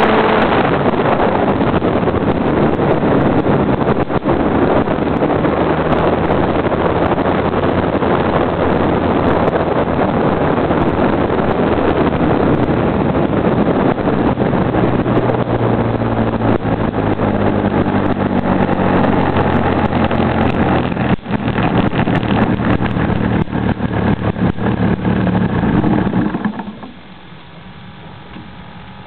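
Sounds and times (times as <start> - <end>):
model airplane engine running: 0.0 - 29.0
propeller winding down: 0.0 - 29.0
faint steady noise: 19.6 - 29.0
clicks and knocks: 25.8 - 27.2.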